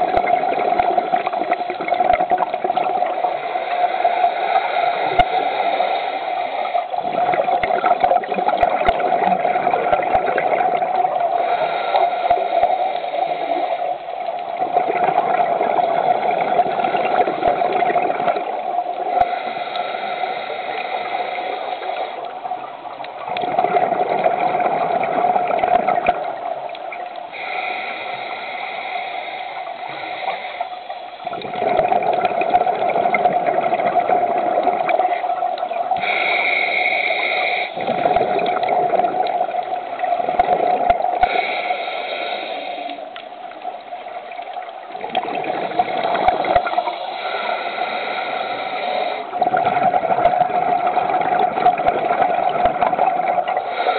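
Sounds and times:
exhaled bubbles rumbling: 0.0 - 3.6, 6.8 - 11.5, 12.2 - 19.4, 22.2 - 27.3, 31.2 - 36.2, 37.8 - 41.4, 43.1 - 47.0, 49.3 - 53.9
scuba breathing through regulator: 3.0 - 7.0, 11.3 - 14.1, 18.9 - 22.4, 27.2 - 31.6, 35.9 - 39.2, 40.3 - 43.4, 45.1 - 49.6, 53.4 - 53.9.

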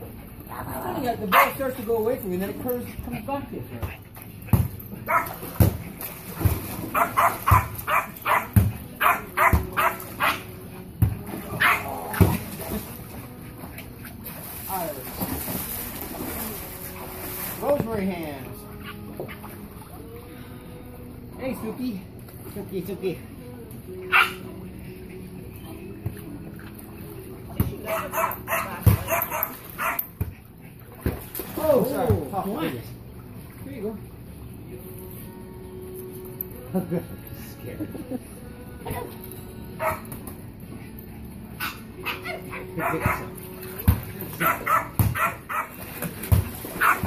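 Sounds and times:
small dog barking: 1.3 - 1.5, 5.1 - 5.3, 6.9 - 10.4, 24.1 - 24.4, 27.9 - 30.0, 39.8 - 40.0, 44.4 - 45.7, 46.8 - 47.0
small dog yapping: 5.1 - 5.3, 27.9 - 30.0.

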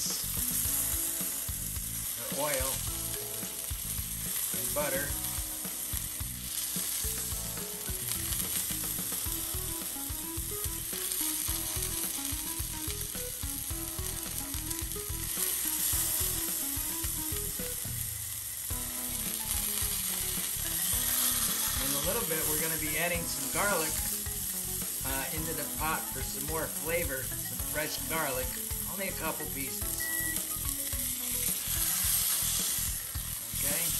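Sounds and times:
meat sizzling in a skillet: 0.0 - 33.9
metal tongs turning meat: 1.6 - 9.4, 19.2 - 33.9.

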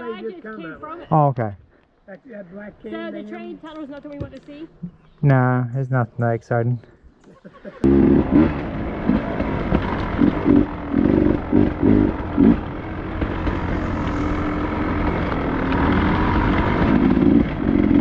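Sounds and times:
two-stroke dirt bike engine: 7.8 - 18.0.

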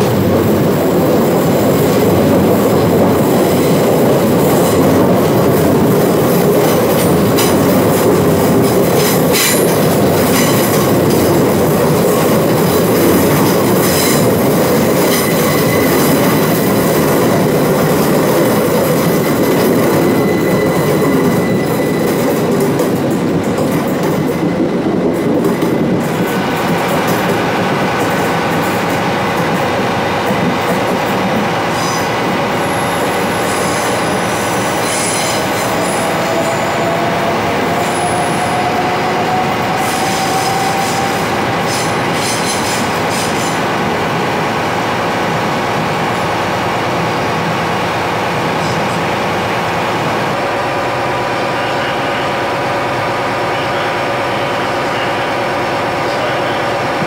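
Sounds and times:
train wheels rumbling on rail: 0.0 - 57.0
wheel squeals: 19.2 - 22.7, 31.8 - 37.1.

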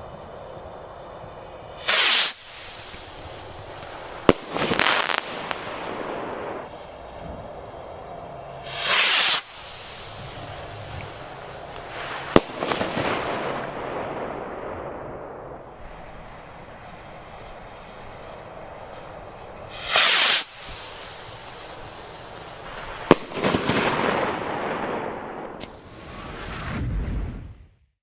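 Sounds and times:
firework crackling: 0.0 - 27.6
rocket launch whoosh: 1.7 - 7.6, 8.5 - 16.6, 19.2 - 27.7
firework burst bang: 1.8 - 7.0, 8.6 - 16.6, 19.2 - 21.8, 22.7 - 27.4.

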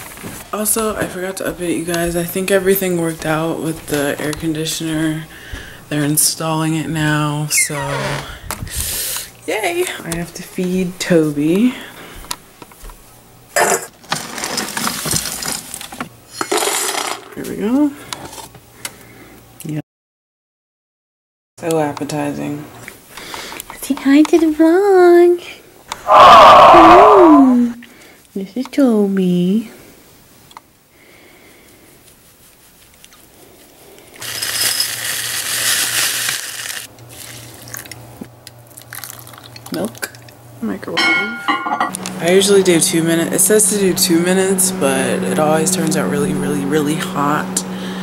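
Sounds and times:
kibble rattling in metal bowl: 34.2 - 36.9
low steady hum: 36.9 - 48.0.

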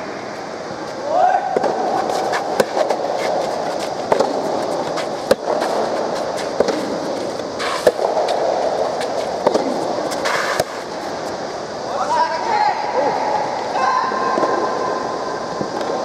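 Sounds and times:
steady background din: 0.0 - 16.0
tennis ball struck by rackets: 1.5 - 10.8.

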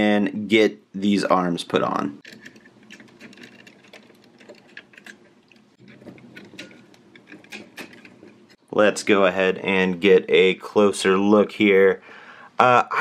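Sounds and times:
plastic toy parts clicking: 2.2 - 8.5.

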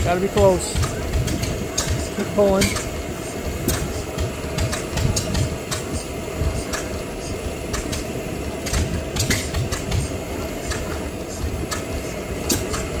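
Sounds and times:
engine low uneven thuds: 0.0 - 13.0
engine sharp clicks: 0.1 - 3.0, 3.6 - 7.1, 7.7 - 13.0.

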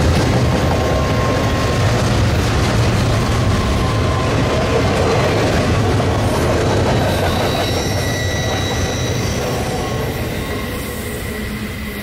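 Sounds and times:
train wheels rumbling on rail: 0.0 - 12.0
wheel squeal: 3.2 - 12.0.

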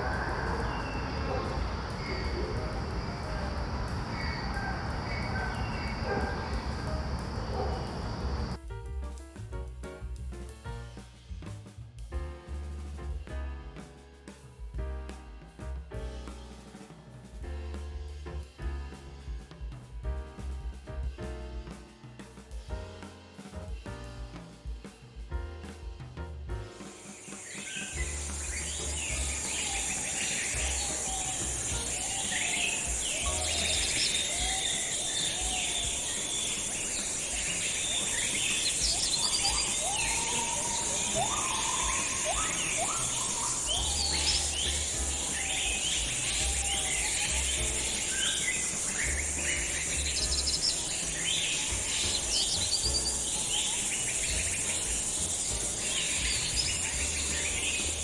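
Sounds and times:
birds chirping and singing: 0.0 - 8.6, 26.9 - 58.0
high-pitched insect drone: 0.0 - 8.6, 27.0 - 58.0.

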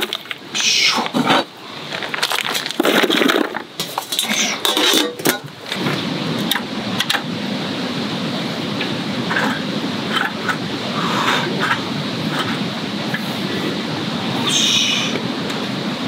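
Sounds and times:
steady hiss: 0.0 - 16.0
ice cubes clattering into metal box: 2.0 - 5.5.

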